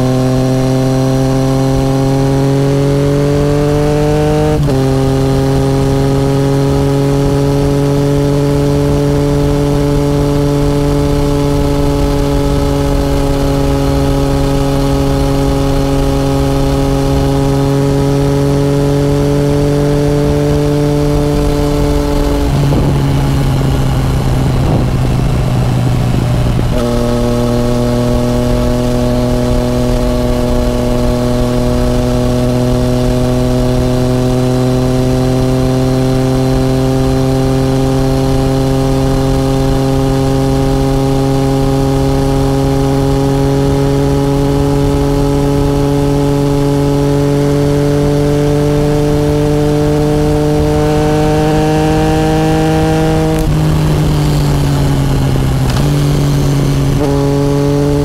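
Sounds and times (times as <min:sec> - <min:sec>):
wind rush: 0:07.2 - 0:33.2, 0:48.8 - 0:58.0
motorcycle engine pulling: 0:49.9 - 0:58.0.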